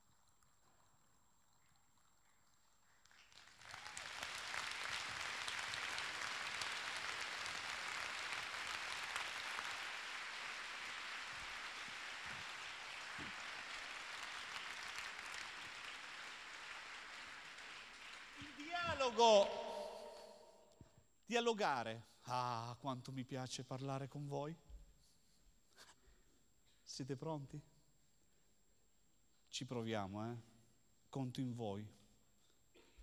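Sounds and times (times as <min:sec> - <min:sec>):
audience applauding: 0:03.1 - 0:20.3.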